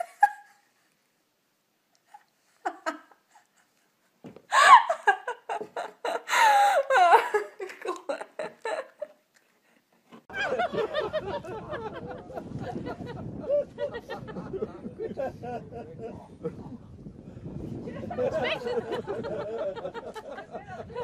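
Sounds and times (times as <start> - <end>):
woman laughing: 0.0 - 0.6, 2.0 - 3.8, 4.5 - 9.2, 18.0 - 21.0.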